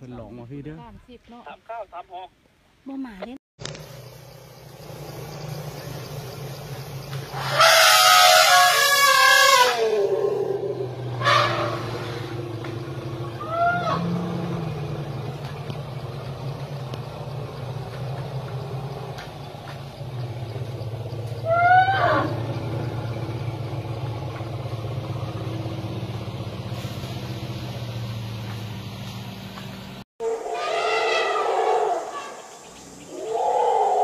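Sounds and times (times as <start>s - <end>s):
vehicle engine idling: 3.6s - 30.0s
elephant trumpeting: 7.3s - 15.0s, 21.4s - 22.7s, 30.2s - 32.4s.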